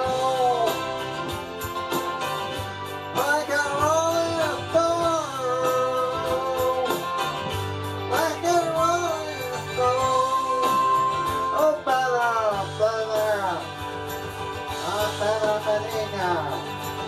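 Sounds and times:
person singing: 0.0s - 1.1s, 3.2s - 13.8s, 14.8s - 16.7s
guitar accompaniment: 0.0s - 17.0s.

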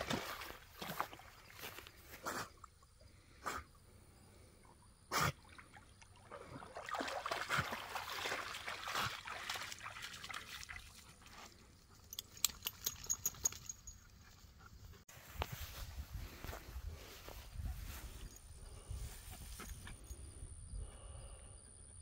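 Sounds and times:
water sloshing and splashing: 0.0s - 1.9s, 5.4s - 11.6s.

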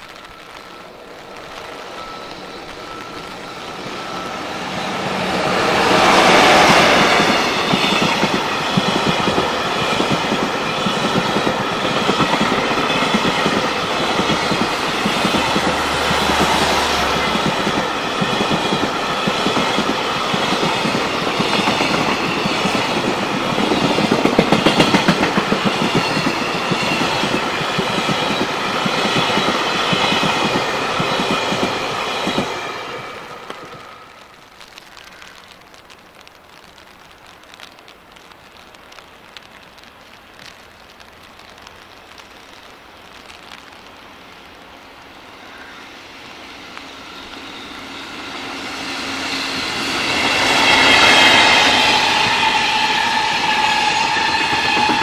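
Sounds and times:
locomotive passing: 0.0s - 34.6s, 43.2s - 55.0s.

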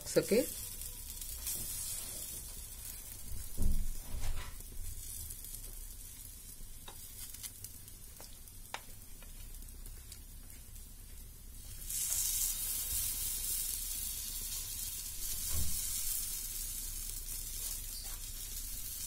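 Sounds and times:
batter sizzling in hot oil: 0.0s - 19.0s
low thump: 3.3s - 4.6s, 15.5s - 15.9s.

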